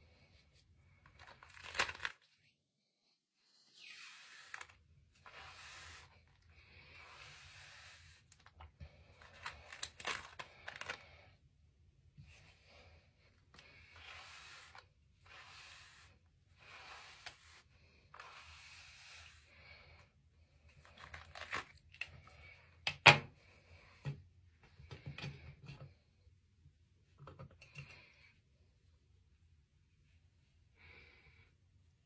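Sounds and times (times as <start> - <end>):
hairbrush swishing through hair: 3.7 - 8.3, 13.7 - 19.6.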